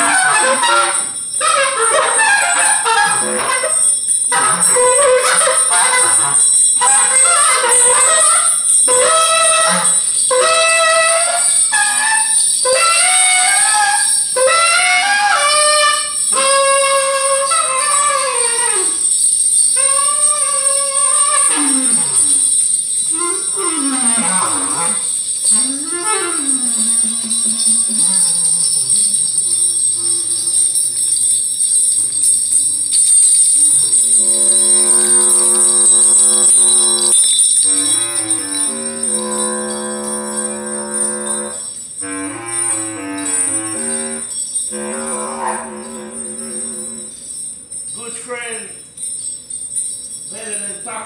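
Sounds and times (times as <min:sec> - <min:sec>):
small bells jingling: 0:00.0 - 0:51.0
wavering gliding melody line: 0:18.0 - 0:41.7.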